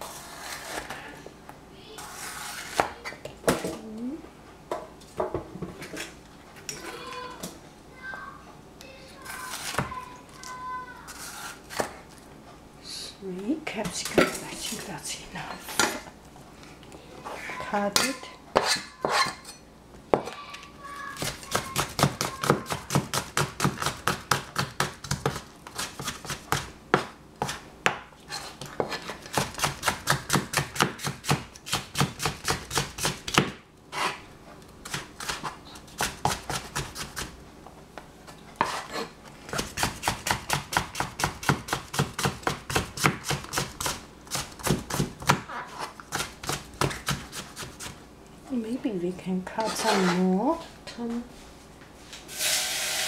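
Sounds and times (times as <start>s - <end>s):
knife chopping pepper: 21.2s - 34.2s, 34.8s - 37.3s, 38.6s - 48.0s.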